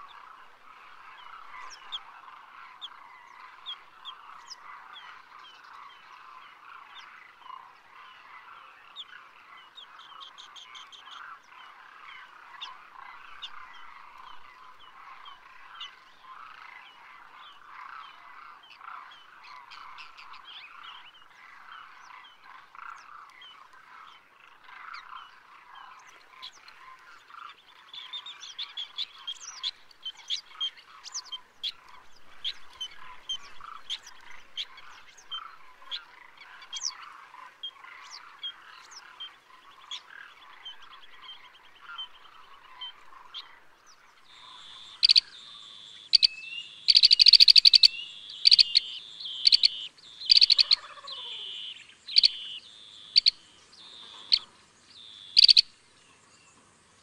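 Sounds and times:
animal chirps and croaks: 0:00.0 - 0:56.0
loud sharp chirps: 0:46.1 - 0:50.8, 0:55.2 - 0:55.7.

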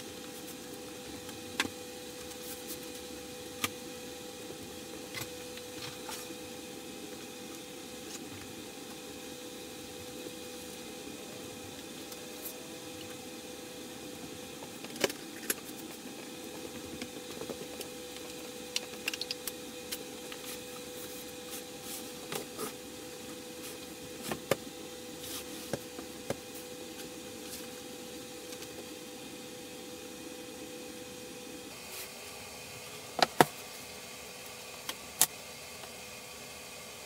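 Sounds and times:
steady electrical hum: 0:00.0 - 0:37.0
clicks and knocks of handled materials: 0:16.6 - 0:20.6.

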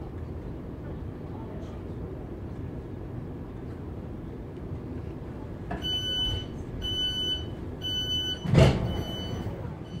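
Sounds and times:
low rumble of standing train: 0:00.0 - 0:10.0
door warning beeps: 0:05.7 - 0:10.0
heavy thud of doors shutting: 0:08.3 - 0:09.5.

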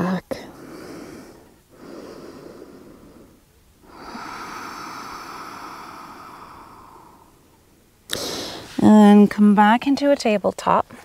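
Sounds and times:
person breathing deeply: 0:00.4 - 0:08.8.

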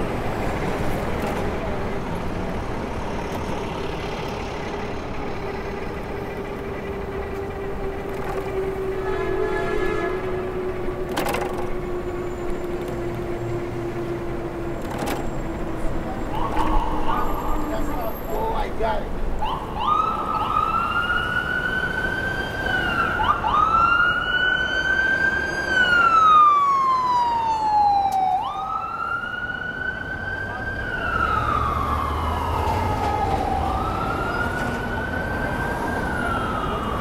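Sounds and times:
street traffic: 0:00.0 - 0:37.0
siren wailing: 0:05.3 - 0:18.7, 0:19.4 - 0:37.0.

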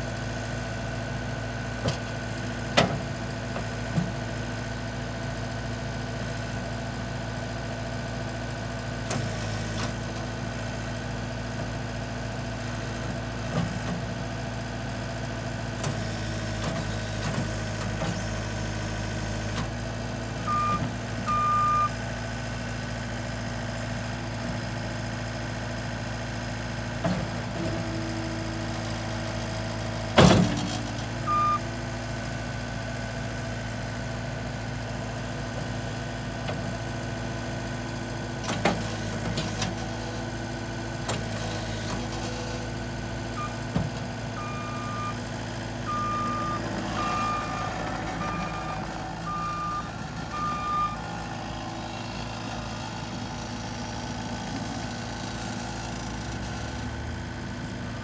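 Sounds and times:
diesel engine running: 0:00.0 - 0:58.0
short beeps: 0:20.5 - 0:21.9, 0:31.3 - 0:31.6, 0:44.4 - 0:45.2, 0:45.9 - 0:51.0.

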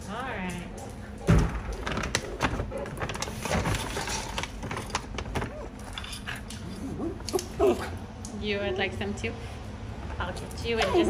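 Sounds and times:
dog grumbling whine: 0:05.4 - 0:08.0.

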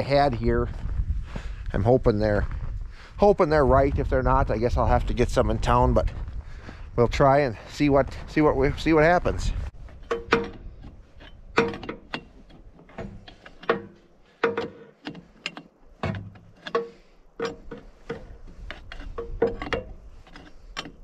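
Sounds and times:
metal tools clinking on steel: 0:09.9 - 0:21.0.

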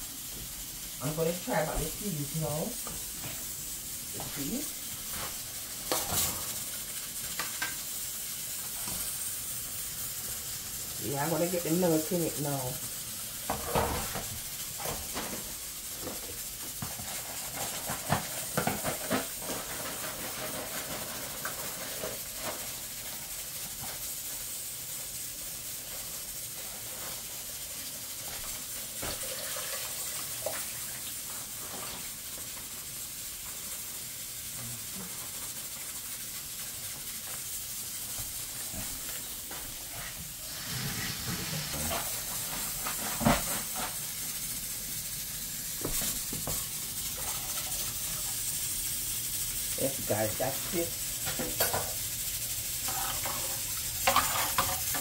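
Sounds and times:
pressure cooker hissing steam: 0:00.0 - 0:55.0
pots and utensils clinking: 0:04.2 - 0:07.9, 0:13.4 - 0:24.0, 0:38.6 - 0:44.2, 0:49.8 - 0:55.0.

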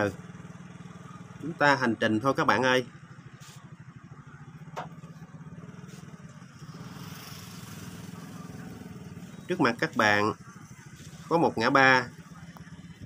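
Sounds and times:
motorbike engine running: 0:00.0 - 0:13.0.

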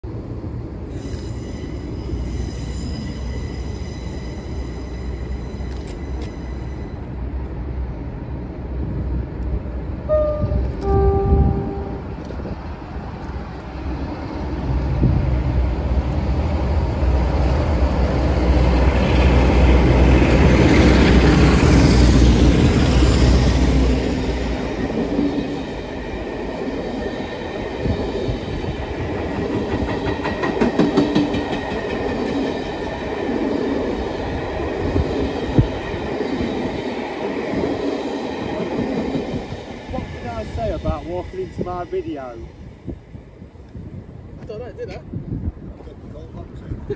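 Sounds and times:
diesel locomotive engines rumbling: 0:00.0 - 0:46.9
train horn: 0:10.0 - 0:12.3
coaches clacking over rail joints: 0:28.6 - 0:33.1.

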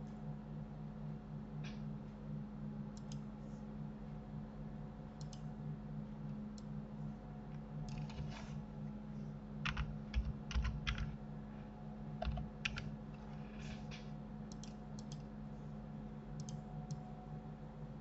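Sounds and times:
low electrical hum: 0:00.0 - 0:18.0
typing on computer keyboard: 0:09.6 - 0:11.2, 0:12.2 - 0:12.9.

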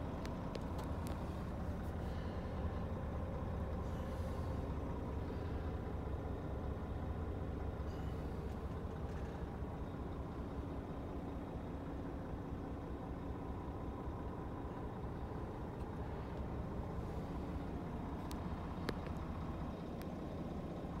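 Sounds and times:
truck diesel engine idling: 0:00.0 - 0:21.0.

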